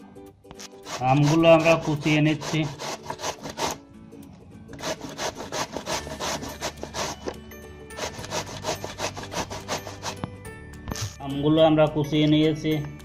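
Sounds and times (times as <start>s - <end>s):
mango rasping on metal grater: 0.7s - 3.8s, 4.8s - 10.2s.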